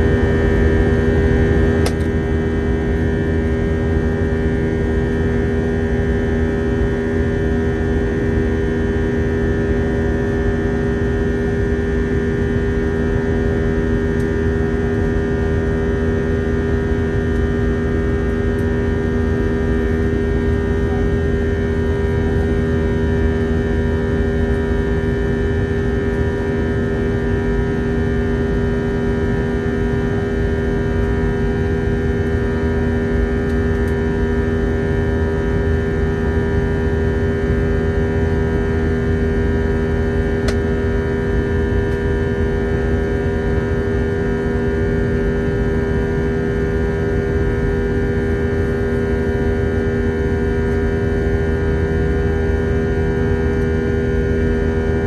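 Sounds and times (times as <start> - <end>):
jet engine hum: 16.4 - 26.6.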